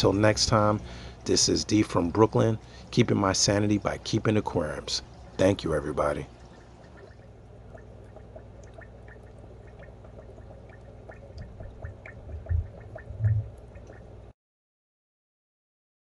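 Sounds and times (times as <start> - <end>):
water trickling and dripping: 2.2 - 14.3
low hum: 4.8 - 14.3
low thumps: 11.4 - 13.6.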